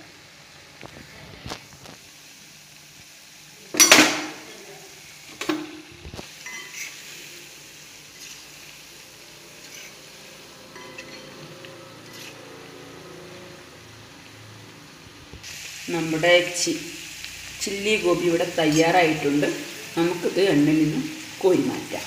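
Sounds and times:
oil sizzling: 0.0s - 22.0s
metal ladle scraping a wok: 5.4s - 7.2s, 8.1s - 13.6s.

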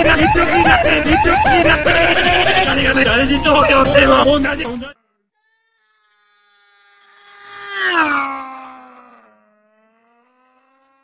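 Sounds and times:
man wailing: 0.0s - 5.0s.

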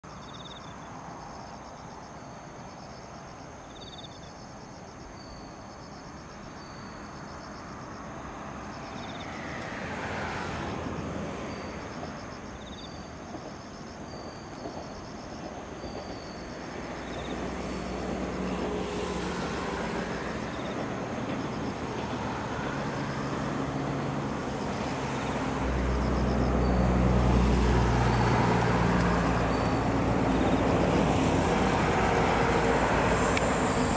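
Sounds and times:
insects chirping: 0.0s - 33.9s
passing traffic: 0.0s - 33.9s
diesel railcar engine drone: 8.1s - 33.9s.

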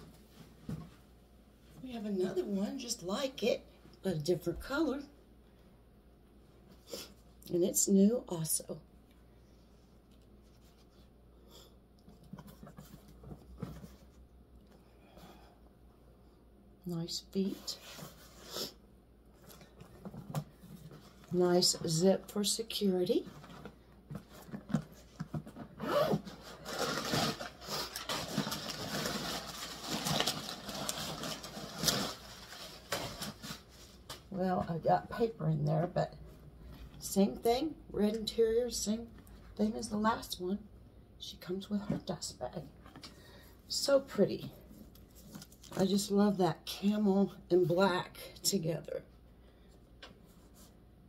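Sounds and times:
paper rustling and crinkling: 23.2s - 34.4s.

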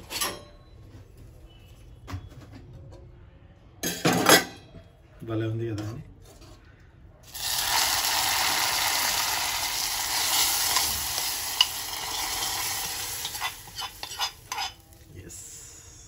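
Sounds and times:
food sizzling in hot pan: 7.2s - 15.0s.

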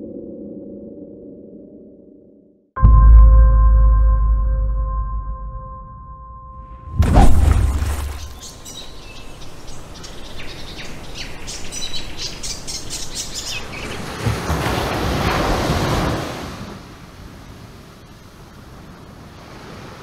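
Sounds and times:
deep boom: 2.8s - 8.4s
rushing noise: 6.8s - 8.4s
birds chirping: 7.3s - 14.2s.

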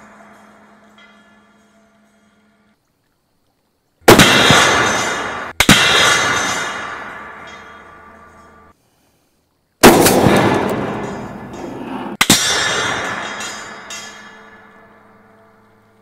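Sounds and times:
metal ringing: 0.0s - 2.8s, 4.5s - 8.7s, 10.0s - 16.0s
rifle shots hitting steel: 4.1s - 8.7s, 9.8s - 14.9s.

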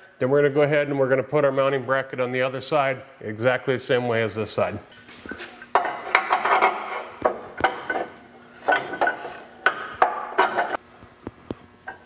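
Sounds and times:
metal bracket clanking: 5.8s - 10.8s.

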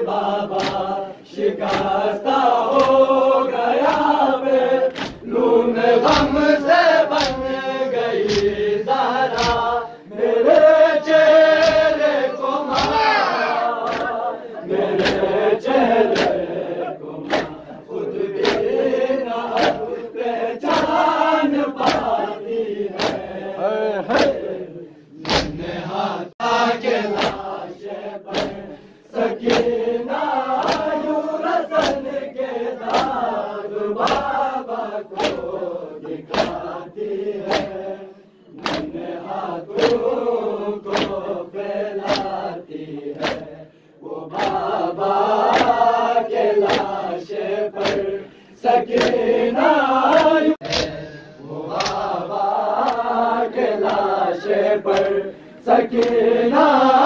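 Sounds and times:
men chanting in unison: 0.0s - 57.0s
palms slapping chests: 0.5s - 1.0s, 4.9s - 5.4s, 7.1s - 7.6s, 8.2s - 8.6s, 9.2s - 9.8s, 11.4s - 16.6s, 17.2s - 17.7s, 18.3s - 20.0s, 21.7s - 22.2s, 22.9s - 23.3s, 25.2s - 25.7s, 27.1s - 27.6s, 28.3s - 28.8s, 34.0s - 34.4s, 35.1s - 36.8s, 37.4s - 37.8s, 38.6s - 39.0s, 39.7s - 40.2s, 40.8s - 41.3s, 42.0s - 43.5s, 44.3s - 44.8s, 45.4s - 47.1s, 47.8s - 48.2s, 48.9s - 49.4s, 50.0s - 52.2s, 54.9s - 55.2s.

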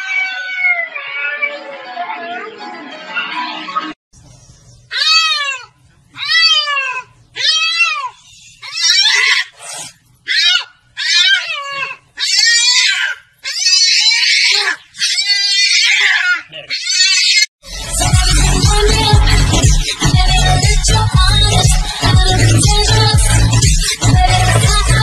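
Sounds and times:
cat yowling: 0.0s - 1.7s, 4.9s - 9.5s, 10.3s - 17.5s.

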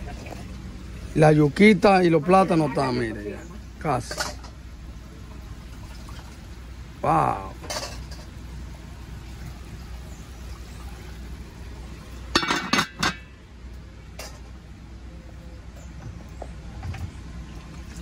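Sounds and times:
metal lid clinking on pot: 12.3s - 13.3s.

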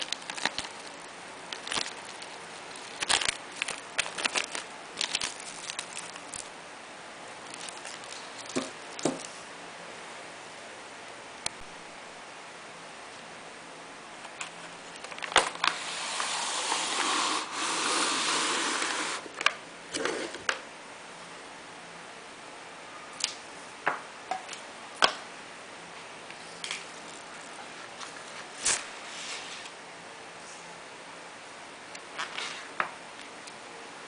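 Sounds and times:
faint steady hum: 0.0s - 34.0s.

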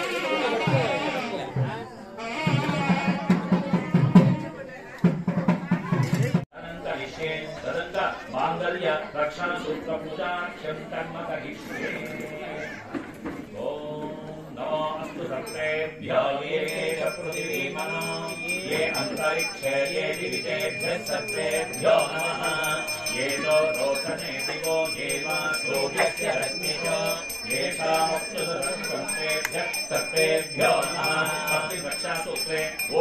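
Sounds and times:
hand bell rung rapidly: 16.6s - 33.0s.

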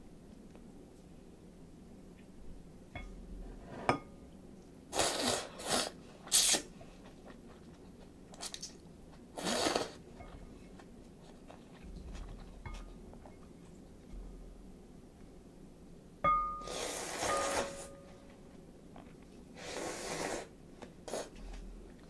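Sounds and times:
person slurping noodles: 4.9s - 6.7s, 9.4s - 10.0s, 16.6s - 17.9s, 19.6s - 20.5s, 21.1s - 21.3s.

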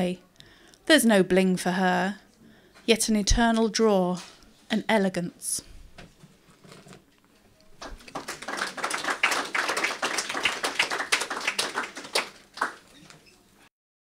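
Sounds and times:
audience applauding: 7.8s - 13.1s.

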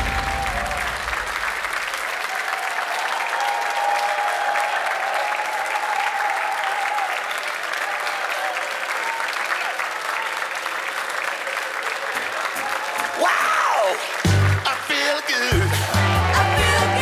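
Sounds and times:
audience applauding and cheering: 0.0s - 17.0s
music: 14.0s - 17.0s.

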